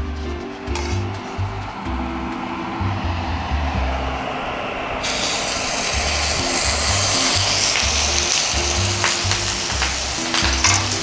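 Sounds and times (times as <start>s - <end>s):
background music: 0.0s - 11.0s
food sizzling in a frying pan: 5.0s - 11.0s.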